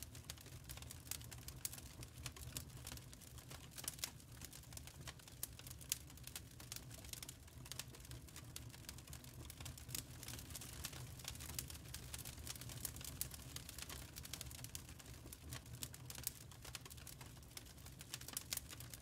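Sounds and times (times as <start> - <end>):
wood fire crackling: 0.0 - 19.0.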